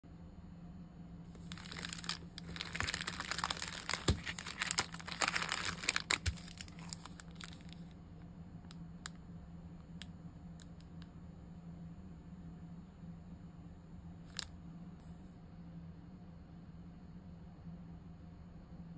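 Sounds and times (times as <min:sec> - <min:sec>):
plastic packets crinkling: 0:01.4 - 0:07.9.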